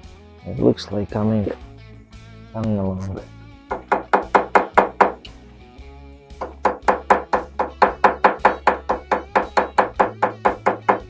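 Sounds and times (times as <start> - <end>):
hammer tapping on metal: 3.7 - 5.2, 6.4 - 11.0.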